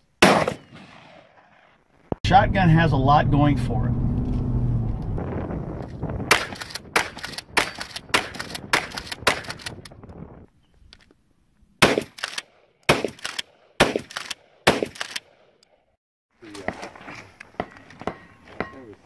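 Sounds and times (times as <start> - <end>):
shotgun shots: 0.2 - 1.7, 6.3 - 9.8, 11.8 - 15.4.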